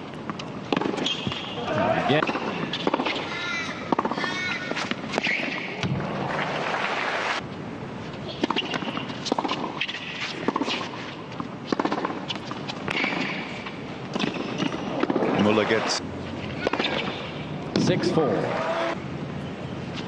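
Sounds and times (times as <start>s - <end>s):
tennis ball struck by racquets: 0.2s - 6.0s, 8.4s - 15.4s, 16.6s - 17.9s.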